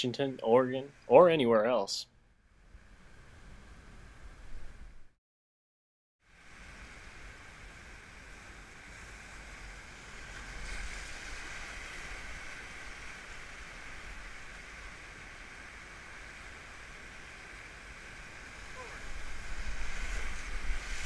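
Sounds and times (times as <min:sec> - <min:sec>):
whitewater rushing: 0:09.4 - 0:21.0.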